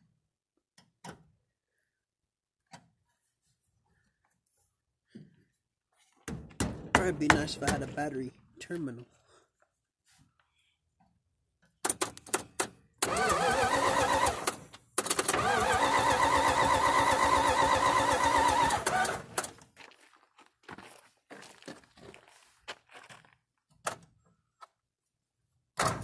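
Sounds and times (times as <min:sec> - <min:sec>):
starter motor cranking engine: 0:13.0 - 0:19.6.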